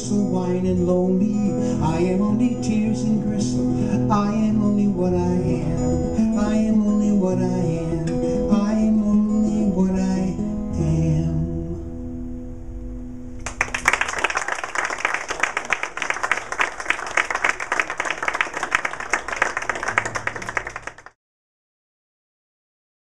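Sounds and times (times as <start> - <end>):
audience applauding: 13.4 - 21.2.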